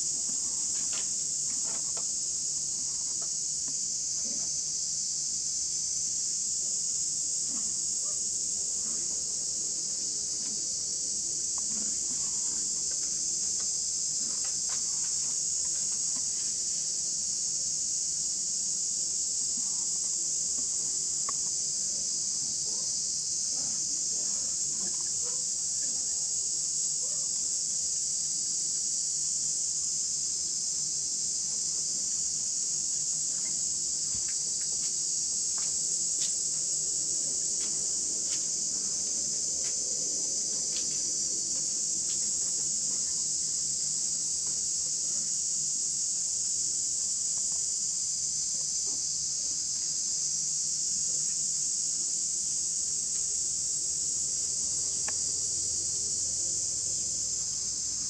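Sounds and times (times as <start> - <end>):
insect chorus drone: 0.0 - 58.0.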